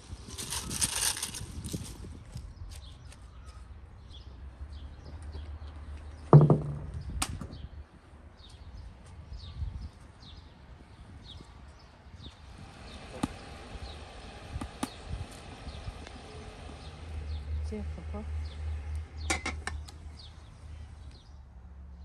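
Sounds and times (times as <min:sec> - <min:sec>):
small birds chirping: 0:00.0 - 0:21.5.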